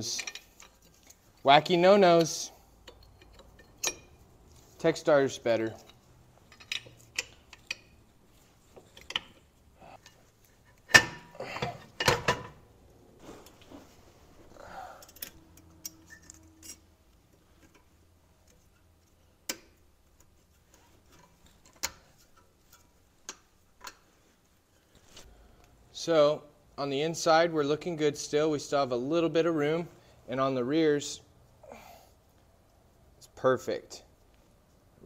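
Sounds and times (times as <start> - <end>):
metallic clicks of brake parts: 2.2 - 4.6, 5.7 - 8.1, 8.7 - 12.5, 15.0 - 24.1.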